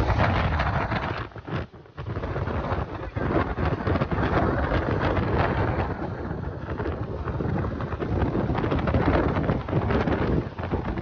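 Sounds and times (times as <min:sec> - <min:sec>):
water rushing: 0:00.0 - 0:11.0
wind buffeting microphone: 0:00.0 - 0:11.0.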